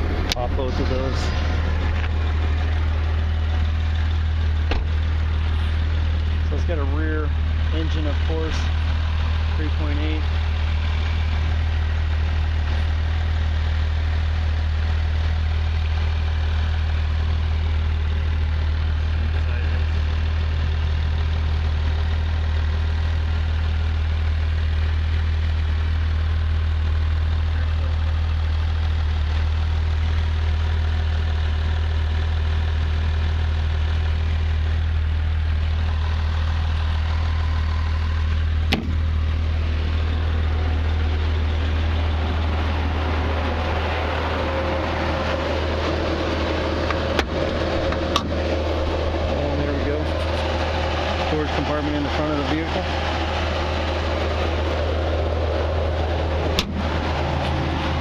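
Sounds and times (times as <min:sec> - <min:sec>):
car engine idling: 0:00.0 - 0:58.0
sharp knock: 0:04.7 - 0:04.9.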